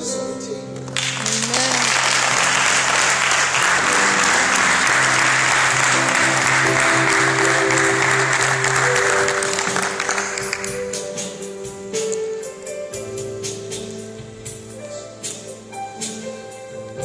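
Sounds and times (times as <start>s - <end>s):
instrumental music with held notes: 0.0s - 17.0s
people clapping: 0.8s - 11.4s.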